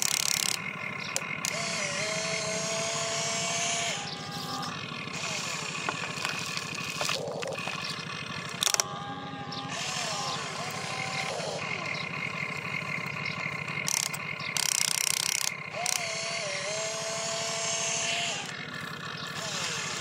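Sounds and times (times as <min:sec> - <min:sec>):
sharp clicks: 0:00.0 - 0:01.8, 0:05.2 - 0:08.9, 0:13.8 - 0:16.2
electric motors whining: 0:00.0 - 0:20.0.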